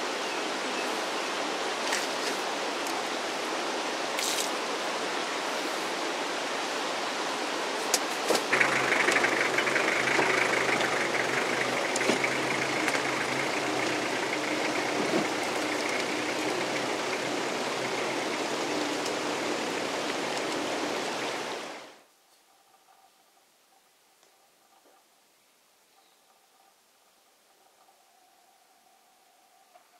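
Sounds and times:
creek rushing: 0.0s - 22.0s
car engine idling: 8.5s - 21.8s.

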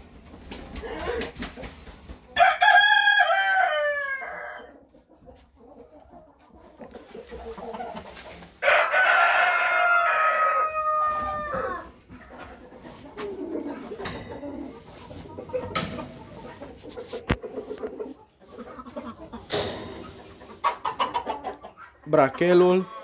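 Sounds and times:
chickens clucking: 0.0s - 23.0s
rooster crowing: 2.4s - 4.7s, 8.6s - 11.9s.

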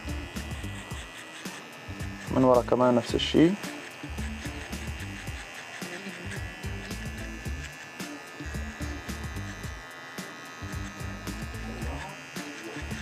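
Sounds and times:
electric hair clipper buzzing: 0.0s - 13.0s
background music with beat: 3.2s - 13.0s.

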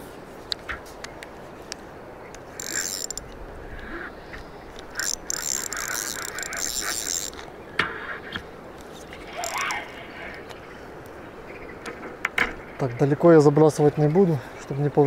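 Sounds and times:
fishing reel gears whirring: 2.5s - 3.3s, 4.7s - 7.6s, 9.2s - 10.0s.

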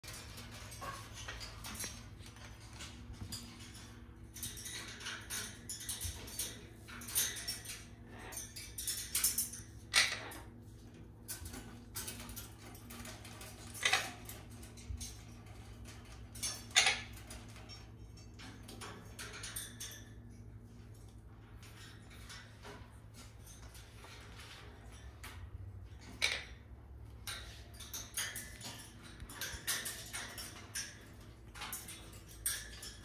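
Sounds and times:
parrot beak clicking on metal bars: 27.2s - 33.0s.

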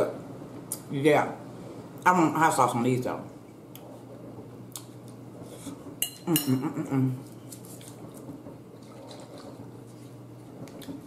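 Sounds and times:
eating sounds: 8.8s - 9.6s.

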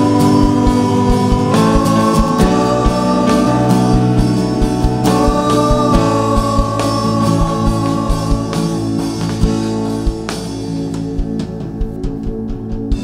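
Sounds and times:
voices singing: 0.0s - 10.4s
worship band playing slow song: 0.0s - 13.0s.

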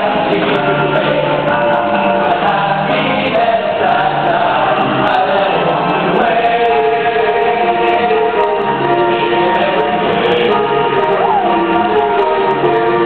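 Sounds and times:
male choir singing in harmony: 0.0s - 13.0s.

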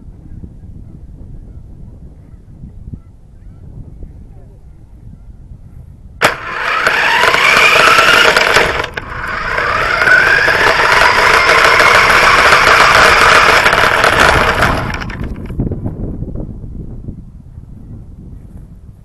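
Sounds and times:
toy car motor whining: 6.2s - 15.6s.

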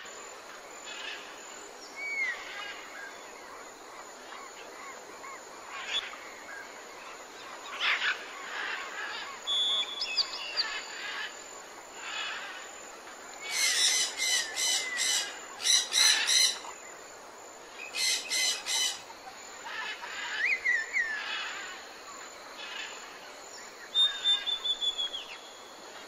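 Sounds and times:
steady background hiss: 0.0s - 26.0s
bird whistles: 24.0s - 25.3s.

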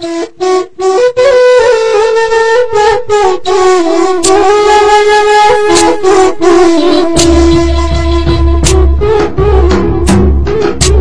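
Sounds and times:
melody over steady beat: 5.7s - 11.0s.

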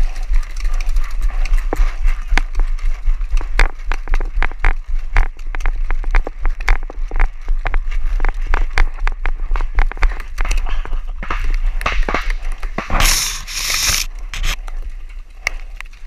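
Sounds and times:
wind rumble on microphone: 0.0s - 13.1s
paintball markers popping: 11.2s - 14.6s.

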